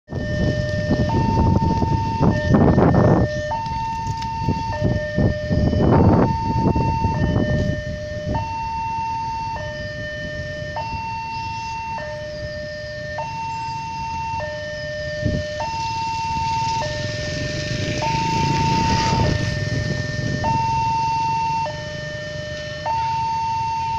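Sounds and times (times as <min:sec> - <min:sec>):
loud rumbling noise: 0:00.1 - 0:08.4, 0:15.1 - 0:22.6
two-tone crossing alarm: 0:00.1 - 0:23.9.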